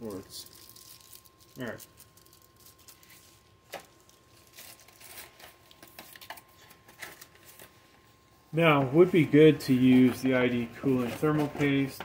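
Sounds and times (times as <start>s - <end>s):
plastic bag crinkling: 0.2s - 7.7s.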